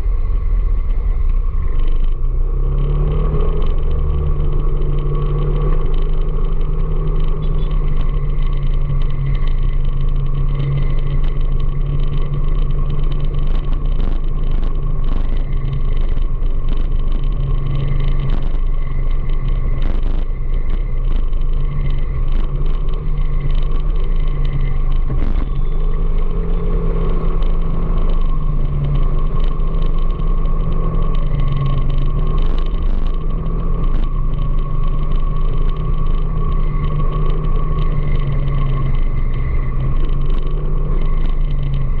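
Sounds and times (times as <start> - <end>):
vehicle engine cruising: 0.0 - 42.0
wind rumble on microphone: 0.0 - 42.0.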